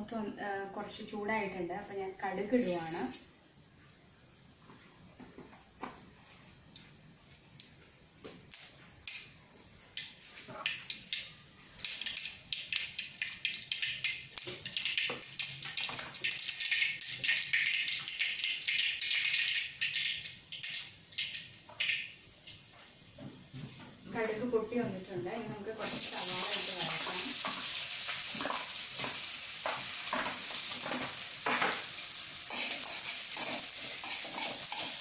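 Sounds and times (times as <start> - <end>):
mustard seeds popping in hot oil: 7.6 - 9.3, 10.0 - 22.6, 25.9 - 35.0.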